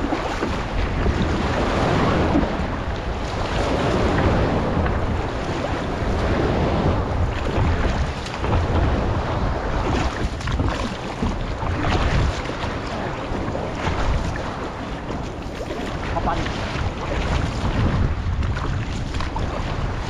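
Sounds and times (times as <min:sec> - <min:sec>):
choppy sea waves: 0:00.0 - 0:20.0
paddle splashing water: 0:00.0 - 0:20.0
wind buffeting microphone: 0:00.0 - 0:20.0.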